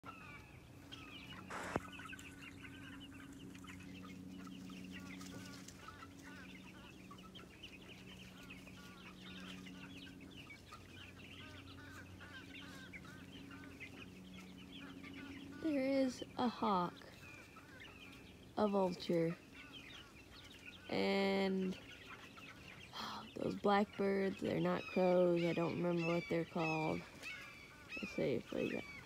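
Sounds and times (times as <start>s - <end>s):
birds chattering and chirping: 0.0s - 29.0s
chickens clucking: 0.0s - 29.0s.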